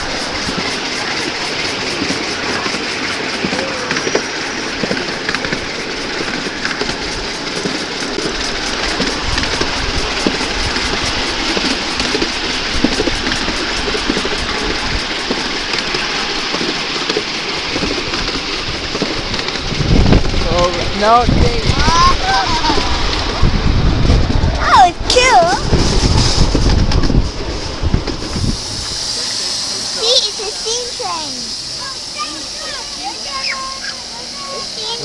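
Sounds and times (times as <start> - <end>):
steady rushing noise: 0.0 - 35.0
wheels clicking on rails: 0.0 - 35.0
low rumble: 18.0 - 30.0.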